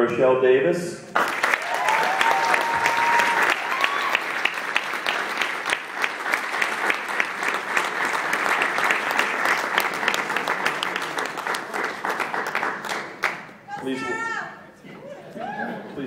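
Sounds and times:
audience applauding: 0:01.2 - 0:14.0.

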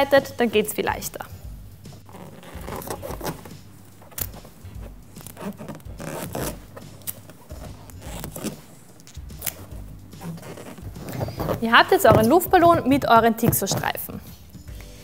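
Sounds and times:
tape rubbing on balloon: 0:01.8 - 0:14.4
sticky tape ripping: 0:02.0 - 0:12.2.

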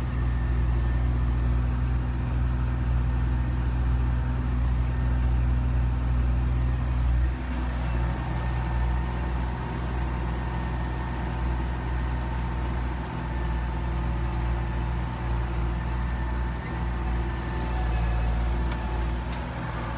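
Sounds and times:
tractor diesel engine under load: 0:00.0 - 0:19.9.

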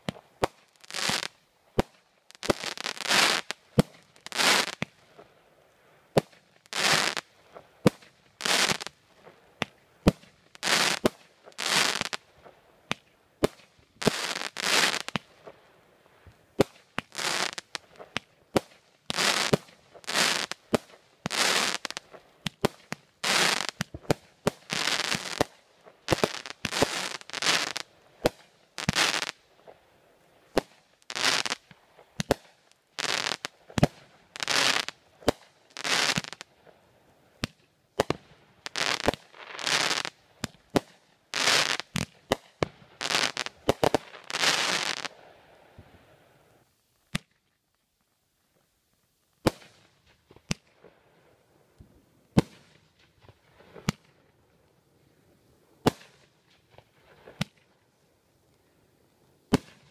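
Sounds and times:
firework cracks and pops: 0:00.0 - 0:05.3, 0:06.1 - 0:46.0, 0:47.0 - 0:48.1, 0:49.3 - 0:51.0, 0:52.3 - 0:54.4, 0:55.8 - 0:57.8, 0:59.5 - 0:59.9
hissing firework shots: 0:07.9 - 0:09.0, 0:16.6 - 0:29.4, 0:30.5 - 0:36.4, 0:55.8 - 0:57.7, 0:59.5 - 0:59.9.

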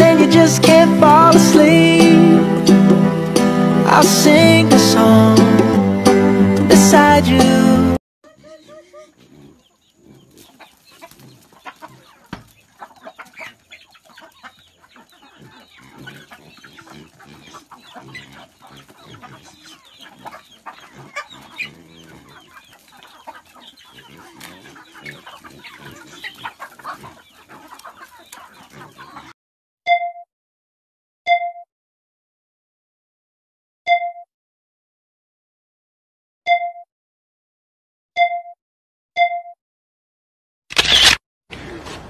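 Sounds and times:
chickens clucking: 0:00.0 - 0:07.7, 0:08.3 - 0:29.4.

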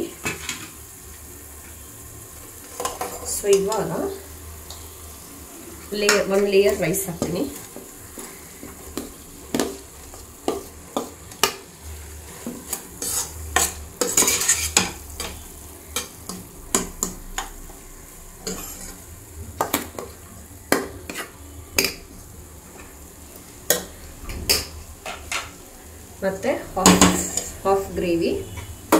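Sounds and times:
faint sizzle of gravy: 0:00.0 - 0:28.9
metal spoon clinking and scraping: 0:12.3 - 0:15.4, 0:18.4 - 0:19.0.

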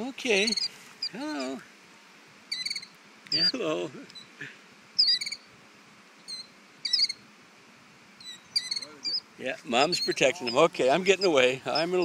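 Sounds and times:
bird alarm calls: 0:00.3 - 0:01.6, 0:02.5 - 0:04.4, 0:05.0 - 0:05.5, 0:06.2 - 0:07.2, 0:08.2 - 0:12.0.

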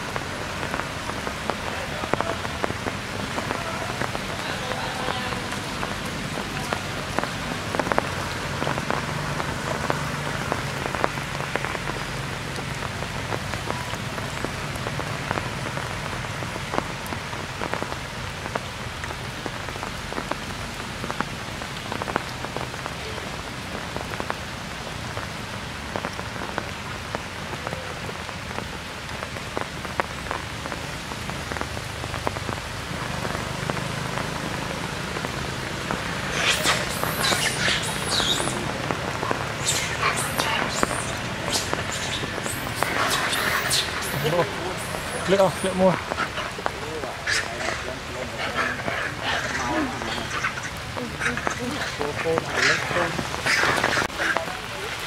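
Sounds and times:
rain falling: 0:00.0 - 0:55.0
raindrops striking close by: 0:00.0 - 0:55.0.

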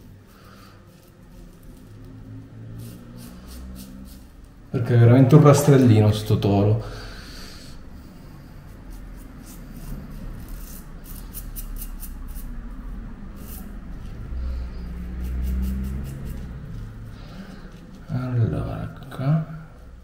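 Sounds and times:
razor scraping beard stubble: 0:00.3 - 0:04.7, 0:07.8 - 0:12.7, 0:13.3 - 0:18.2.

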